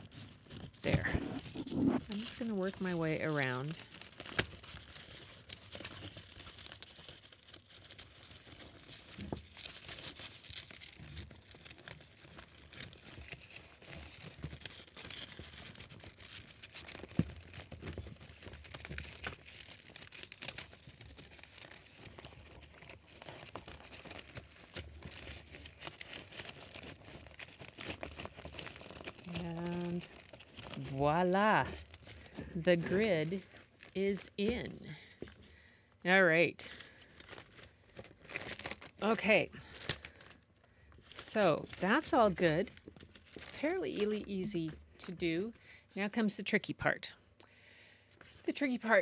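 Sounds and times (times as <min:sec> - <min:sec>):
fabric rustling and crinkling: 0:00.0 - 0:34.0.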